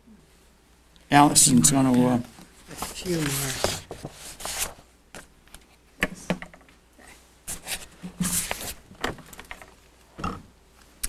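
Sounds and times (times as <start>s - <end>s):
rustling: 1.9s - 4.9s.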